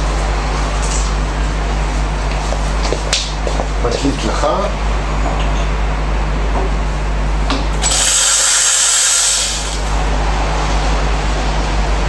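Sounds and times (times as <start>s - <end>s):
steam wand hissing: 7.8s - 10.0s.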